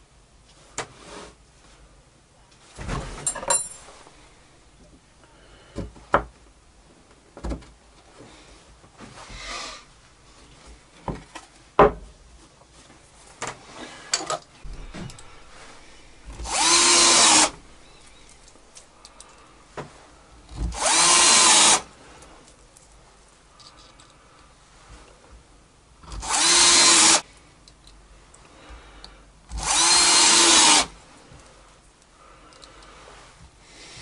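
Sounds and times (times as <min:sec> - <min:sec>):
cordless drill drilling into plywood: 0:16.3 - 0:17.6, 0:20.6 - 0:21.9, 0:26.0 - 0:27.2, 0:29.5 - 0:30.9.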